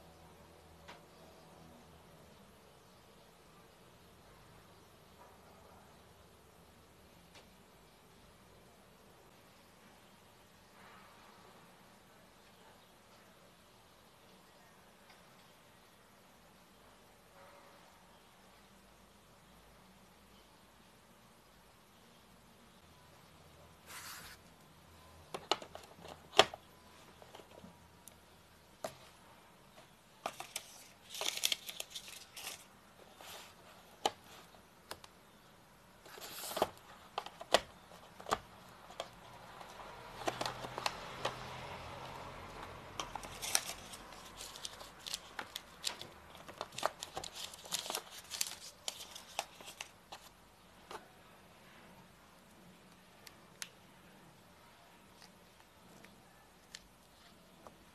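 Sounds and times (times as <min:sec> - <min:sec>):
phone and box clicks and taps: 0:25.2 - 0:27.7, 0:36.5 - 0:41.6
packaging rustling: 0:30.2 - 0:34.6, 0:36.0 - 0:41.6, 0:42.6 - 0:50.3.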